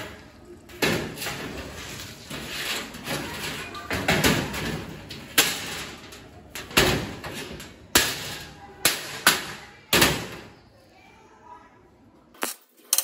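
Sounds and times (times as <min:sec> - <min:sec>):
hammer banging on sheet metal: 0:00.7 - 0:10.5.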